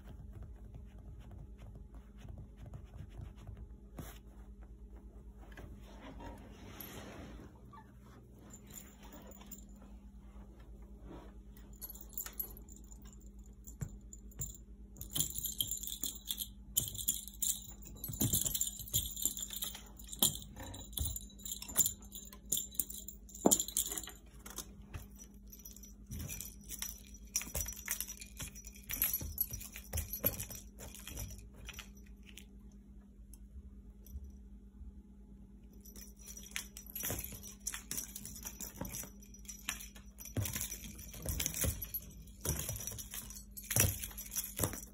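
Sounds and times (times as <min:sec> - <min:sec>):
jingle bell jingling: 0:11.6 - 0:32.0, 0:35.8 - 0:44.9.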